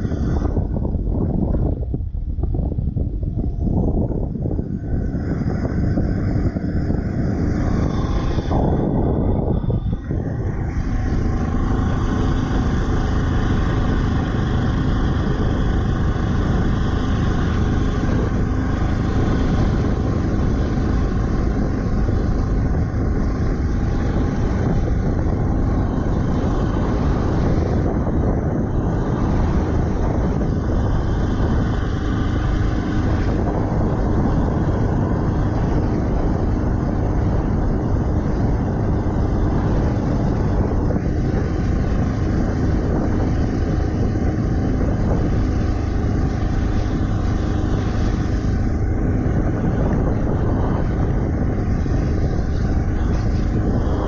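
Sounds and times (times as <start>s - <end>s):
boat engine running steadily: 0.0s - 54.0s.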